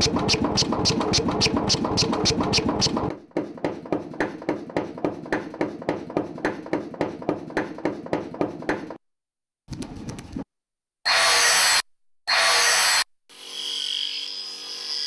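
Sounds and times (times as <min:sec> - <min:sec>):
sampled metal strikes beat: 0:00.0 - 0:03.1.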